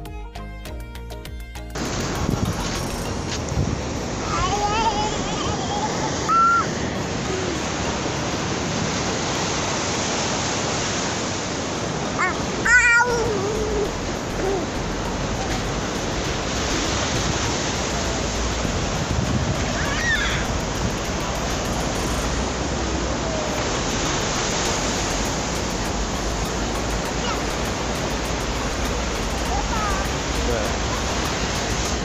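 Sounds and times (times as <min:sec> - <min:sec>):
sea surf on beach: 0:01.8 - 0:32.0
wind on microphone: 0:01.8 - 0:32.0
child brief high vocal sound: 0:04.4 - 0:07.5, 0:12.2 - 0:14.7, 0:19.8 - 0:20.4.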